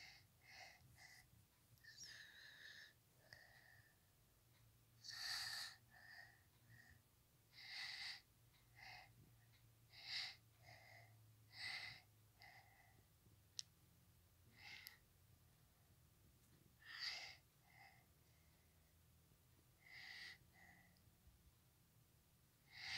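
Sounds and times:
person breathing: 0.0 - 4.1, 5.0 - 13.1, 14.5 - 15.0, 16.8 - 18.9, 19.8 - 21.1, 22.7 - 22.9.

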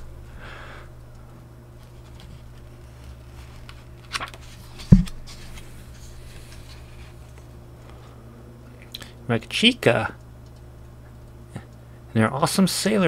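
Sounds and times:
low hum: 0.0 - 12.2
paper rustling: 1.8 - 8.0.

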